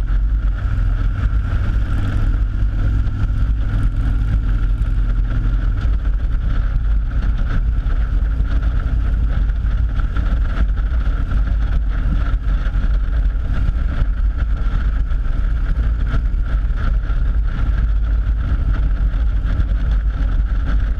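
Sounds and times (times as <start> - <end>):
motorcycle engine: 0.0 - 20.9
road noise: 0.0 - 20.9.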